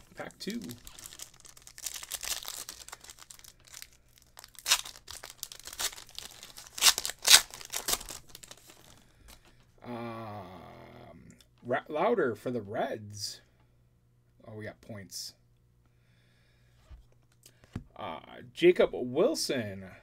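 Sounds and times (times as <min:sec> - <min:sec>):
plastic wrapper crinkling: 0:00.0 - 0:09.5.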